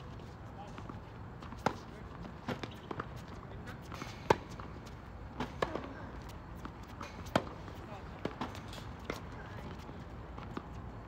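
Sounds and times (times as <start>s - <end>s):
tennis ball bouncing: 1.4s - 3.2s, 3.8s - 5.9s, 6.6s - 9.3s.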